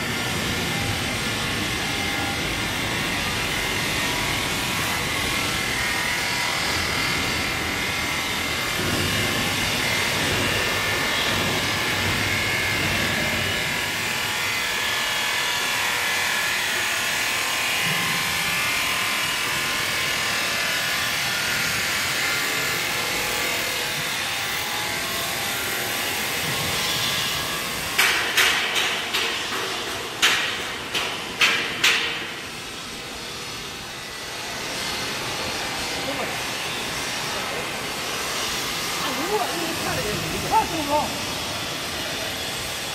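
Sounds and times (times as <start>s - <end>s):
workshop machinery whining: 0.0s - 31.4s, 32.2s - 42.9s
sharp knocks: 28.0s - 32.3s.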